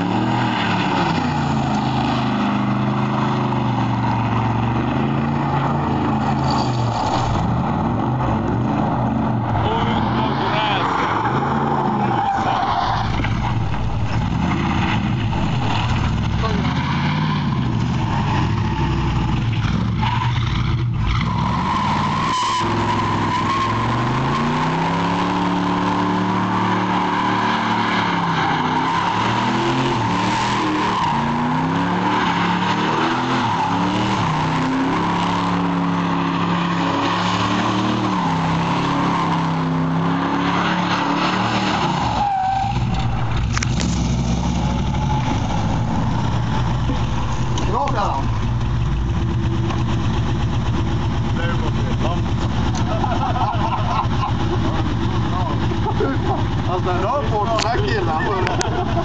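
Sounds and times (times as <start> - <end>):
car engine revving hard: 0.0 - 59.0
tyres squealing: 9.5 - 14.5, 15.4 - 43.5.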